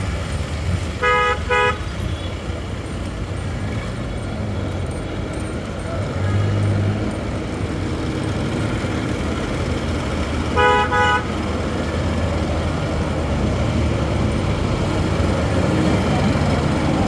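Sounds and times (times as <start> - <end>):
road traffic noise: 0.0 - 17.0
vehicle horn honking: 1.0 - 2.5, 10.6 - 11.3.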